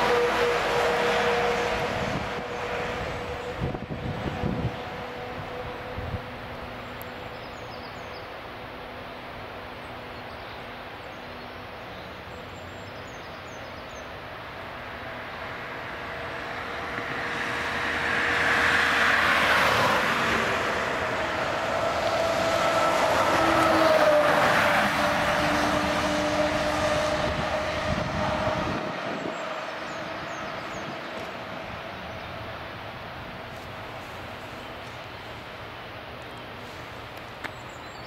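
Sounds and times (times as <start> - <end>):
motor vehicle passing by: 15.2 - 32.7.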